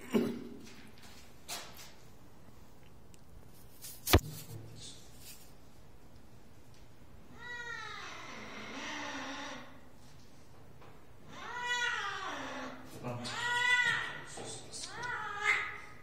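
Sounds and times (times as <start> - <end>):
cat meowing long: 7.4 - 9.8, 11.3 - 14.3.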